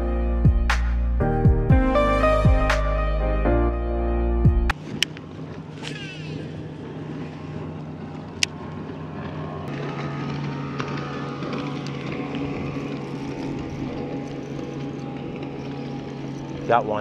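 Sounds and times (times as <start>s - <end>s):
trolling motor humming: 0.0s - 17.0s.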